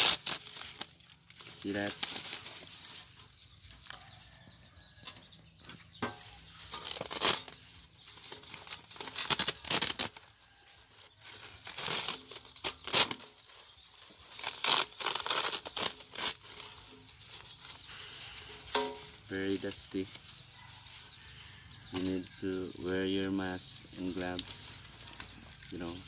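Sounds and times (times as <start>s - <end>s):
brittle circuit board sheets crackling: 0.0s - 2.8s, 6.1s - 10.2s, 11.6s - 17.0s.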